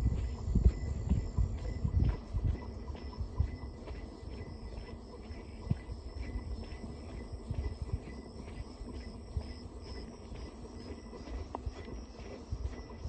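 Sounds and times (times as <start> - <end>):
faint high whine: 0.0 - 13.0
insects chirping: 0.0 - 13.0
footsteps on muddy dirt road: 9.8 - 13.0.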